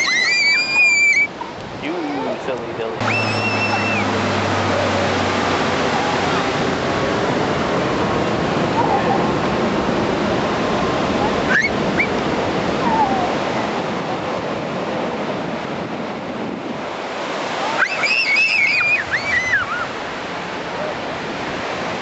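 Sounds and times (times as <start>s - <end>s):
high wavering calls: 0.0s - 1.6s, 3.0s - 4.2s, 17.6s - 19.9s
ocean surf breaking: 0.0s - 22.0s.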